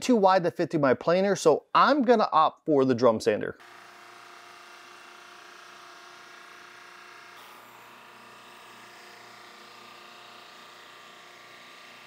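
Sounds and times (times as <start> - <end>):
drum sander humming: 3.6 - 12.0.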